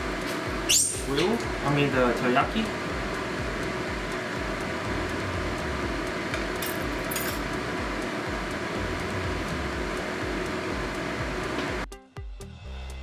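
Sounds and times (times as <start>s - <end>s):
metal skewers clinking and scraping: 6.6s - 7.6s.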